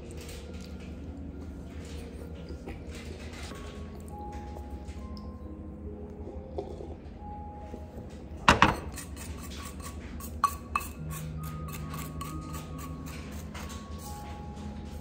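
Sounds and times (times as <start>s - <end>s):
faint background music: 0.0s - 15.0s.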